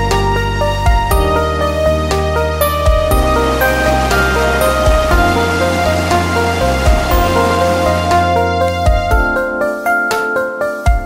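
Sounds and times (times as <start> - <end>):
held low bass: 2.6 - 9.3
gentle melody of pitched notes: 2.6 - 9.5.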